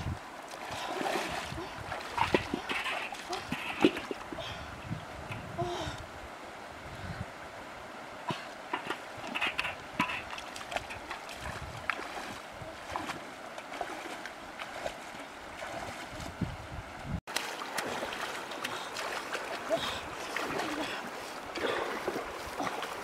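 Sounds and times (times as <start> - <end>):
water splashing: 0.0 - 4.6, 8.7 - 16.5, 17.3 - 23.0
flowing water: 0.0 - 23.0.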